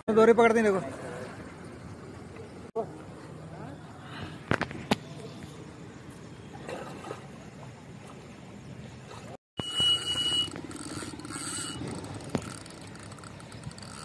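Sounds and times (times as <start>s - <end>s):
outdoor background noise: 0.1s - 14.0s
fishing reel drag ratcheting: 9.6s - 14.0s.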